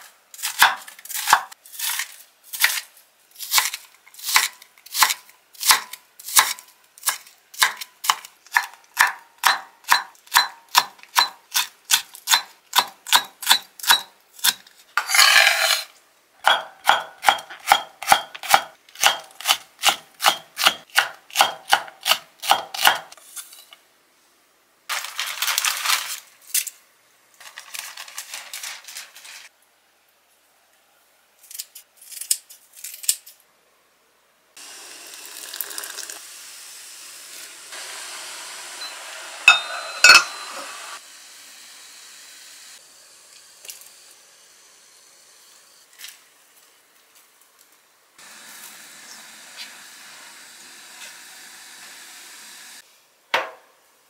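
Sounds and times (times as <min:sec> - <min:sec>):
knife scraping board: 0:13.2 - 0:15.9
knife chopping on wooden board: 0:16.5 - 0:23.1
rustling: 0:24.9 - 0:26.8, 0:27.4 - 0:29.5.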